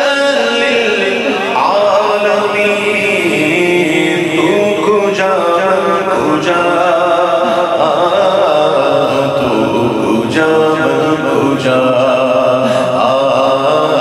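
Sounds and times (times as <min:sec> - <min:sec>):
male voices chanting: 0:00.0 - 0:14.0.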